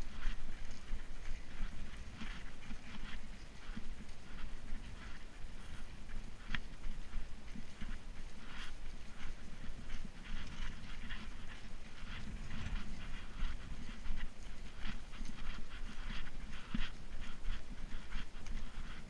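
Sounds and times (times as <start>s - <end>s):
low microphone rumble: 0.0s - 19.0s
hard rhythmic breathing: 7.7s - 19.0s.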